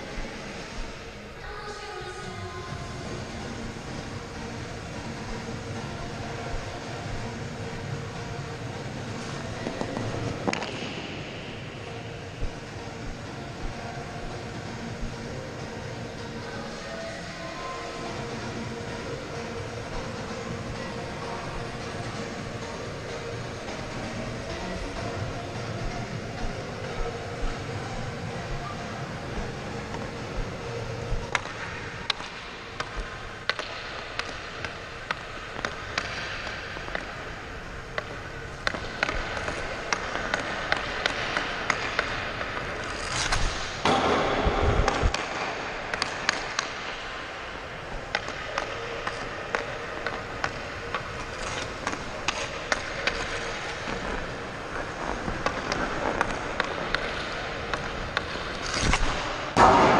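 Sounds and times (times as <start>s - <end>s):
skates scraping on ice: 3.0s - 59.8s
hockey stick hitting puck: 9.2s - 11.6s, 31.2s - 37.2s, 37.9s - 59.9s.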